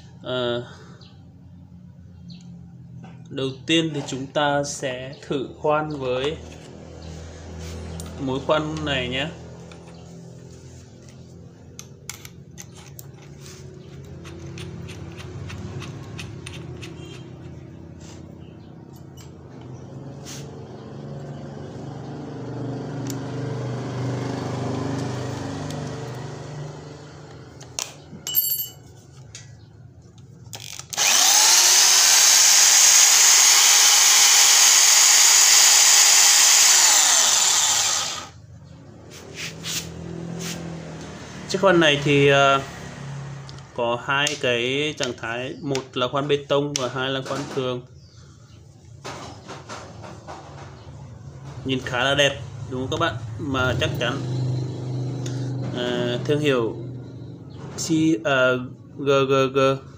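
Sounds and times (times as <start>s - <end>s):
electric drill motor whining: 30.6s - 38.4s.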